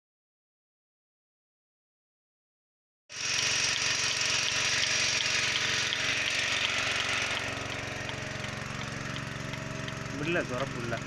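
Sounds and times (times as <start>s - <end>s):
milking machine running: 3.1s - 11.0s.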